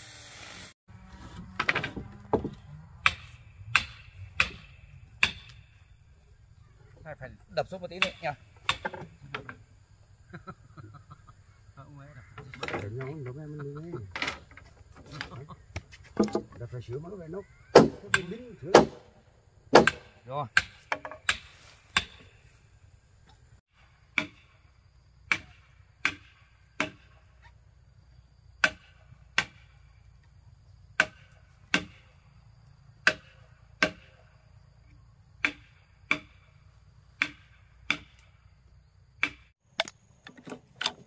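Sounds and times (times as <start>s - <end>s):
hand tool striking timber: 1.3s - 5.7s, 8.0s - 9.6s, 17.8s - 19.1s, 19.7s - 22.3s, 25.3s - 27.2s, 28.6s - 29.6s, 31.0s - 32.1s, 33.0s - 34.2s, 35.4s - 36.5s, 37.2s - 38.3s, 39.2s - 41.0s.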